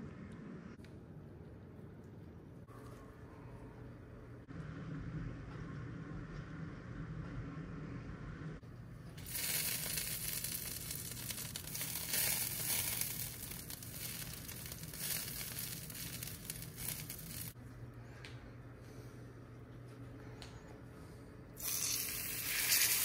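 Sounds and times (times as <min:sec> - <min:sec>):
fat sizzling in a skillet: 0:09.2 - 0:17.6, 0:21.6 - 0:23.0.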